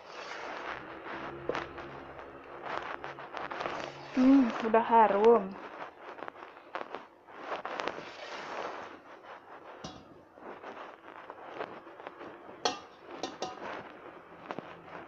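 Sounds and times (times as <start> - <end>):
dough rustling and scraping in bowl: 0.0 - 15.0
spoon clinking against metal bowl: 12.7 - 13.6.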